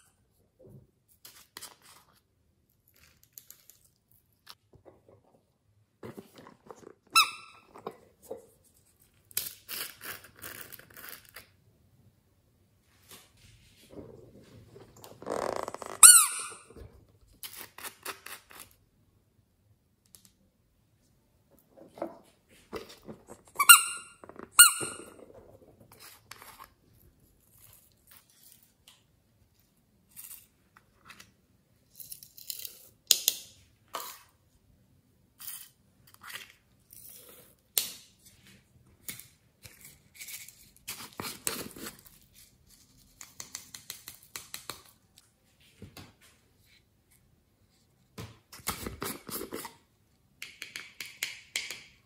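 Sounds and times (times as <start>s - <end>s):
plastic squeaks: 6.4s - 8.0s, 15.0s - 16.8s, 23.2s - 25.6s.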